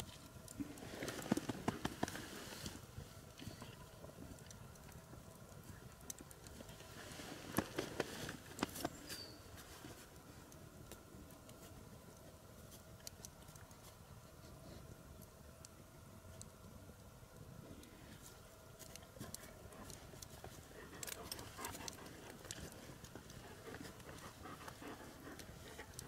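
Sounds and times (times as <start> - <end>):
clicks and rustles: 0.0 - 14.1, 17.8 - 26.0
campfire crackling: 0.0 - 26.0
paws rustling on pine needles: 6.5 - 10.5, 18.1 - 26.0.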